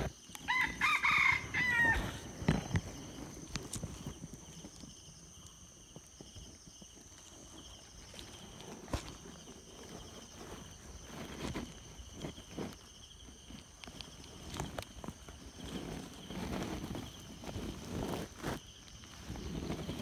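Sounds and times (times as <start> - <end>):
insect chirring: 0.0 - 20.0.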